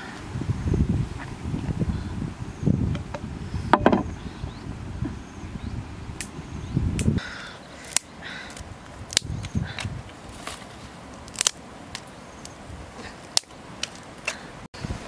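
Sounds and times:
dry twigs clicking and knocking: 7.0s - 14.5s.

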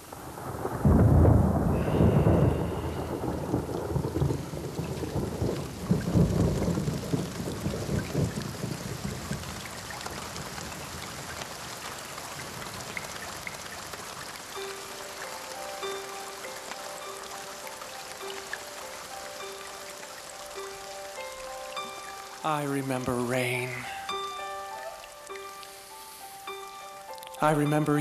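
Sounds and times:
steady rain: 0.0s - 28.0s
thunder rolling: 0.1s - 11.2s.

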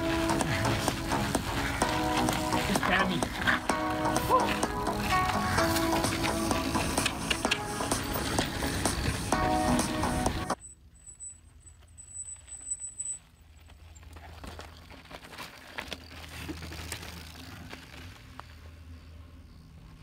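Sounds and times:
bike tyres crunching on trail: 0.0s - 20.0s.

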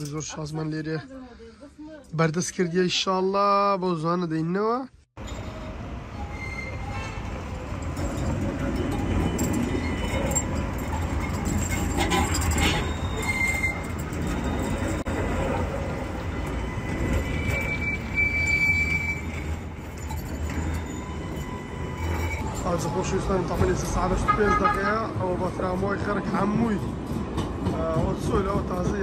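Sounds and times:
high wheel squeal: 5.2s - 24.8s
tram wheels rumbling on rails: 5.2s - 29.0s.

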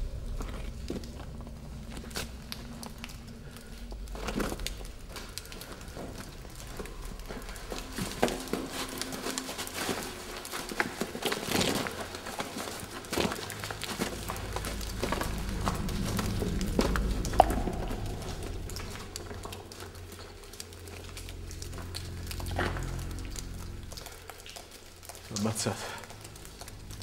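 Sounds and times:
low steady rumble: 0.0s - 27.0s
footsteps crunching through brush: 4.4s - 19.7s.

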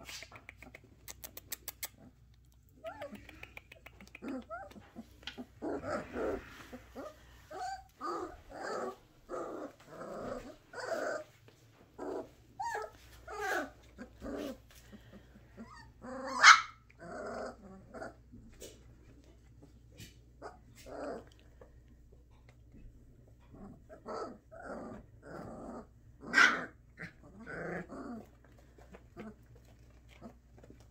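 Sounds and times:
puppies growling: 0.1s - 30.9s
puppy barking: 16.3s - 16.8s, 26.3s - 26.7s.

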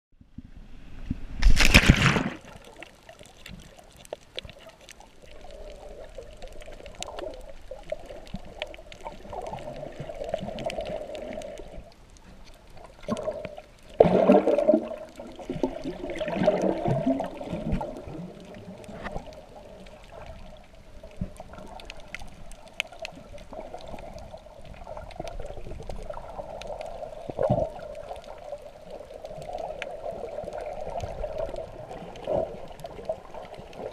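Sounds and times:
water sloshing and gurgling: 0.2s - 33.9s
underwater whoosh: 13.0s - 20.4s.

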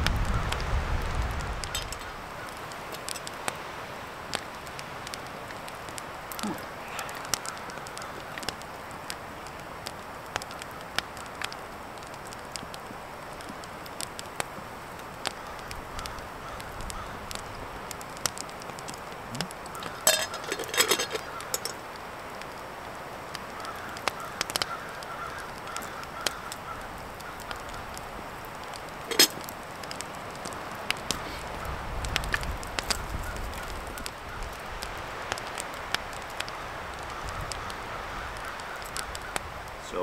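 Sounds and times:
wood fire crackling and popping: 0.0s - 40.0s
spoon knocking metal pot: 19.8s - 21.7s, 29.1s - 29.4s.

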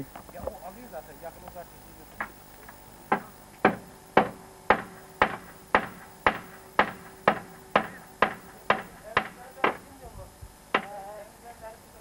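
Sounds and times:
sharp ringing hammer knocks: 3.1s - 9.8s.

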